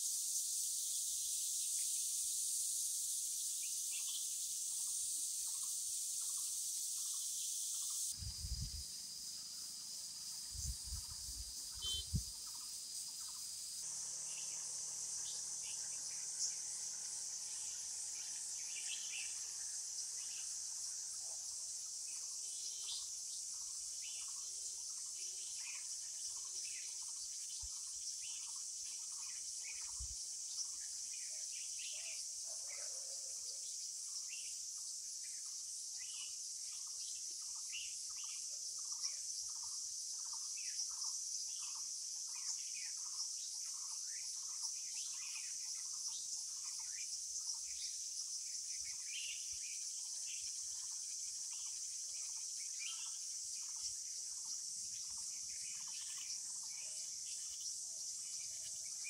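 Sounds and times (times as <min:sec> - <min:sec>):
crickets chirping: 0:00.0 - 0:59.0
bird chirps: 0:03.5 - 0:20.6, 0:48.7 - 0:59.0.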